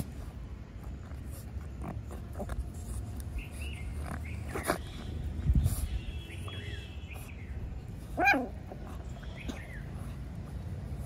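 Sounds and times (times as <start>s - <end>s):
puppy barking: 8.1s - 8.7s.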